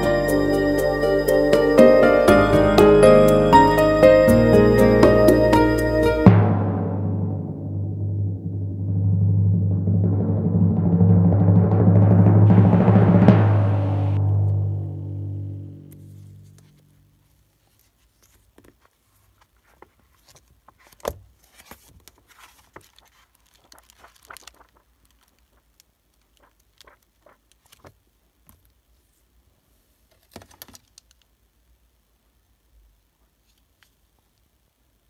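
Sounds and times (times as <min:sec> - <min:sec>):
paper rustling: 0:15.9 - 0:29.2.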